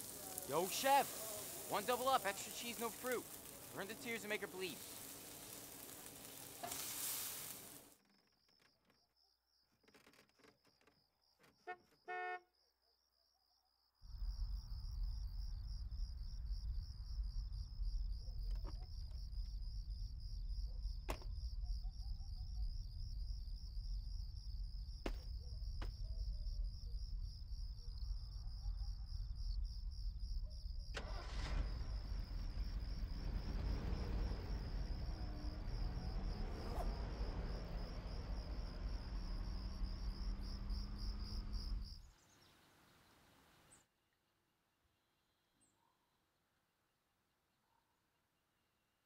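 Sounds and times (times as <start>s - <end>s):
crickets chirping: 0.0s - 43.6s
low constant rumble: 31.6s - 42.1s.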